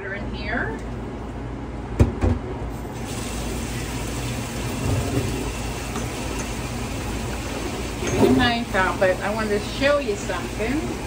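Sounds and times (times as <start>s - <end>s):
kitchen tap running: 2.8s - 11.0s.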